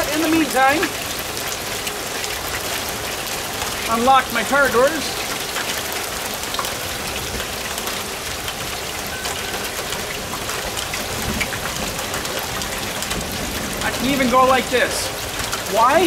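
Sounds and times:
heavy rain falling: 0.0s - 16.0s.

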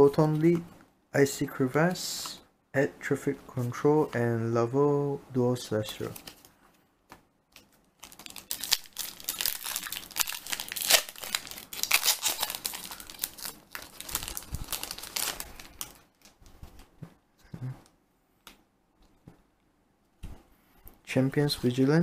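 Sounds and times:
foil wrapper crinkling and tearing: 8.0s - 16.4s.

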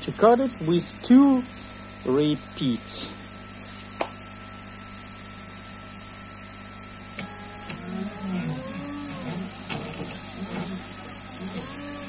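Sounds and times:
air pump hum and hiss: 0.0s - 12.0s
stepper motors whining: 6.4s - 12.0s.

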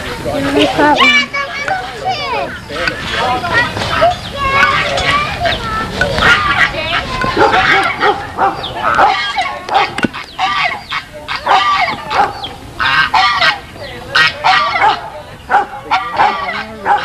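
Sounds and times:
goose honking: 6.2s - 17.0s.

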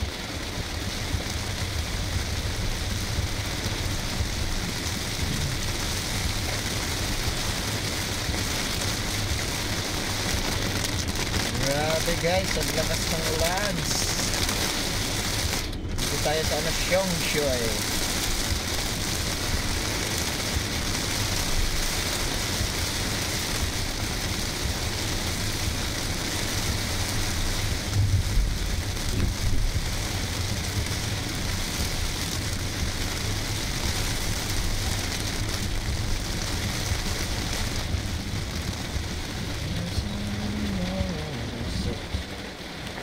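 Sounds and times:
heavy rain on car roof: 0.0s - 43.0s
low thumps: 27.8s - 30.1s.

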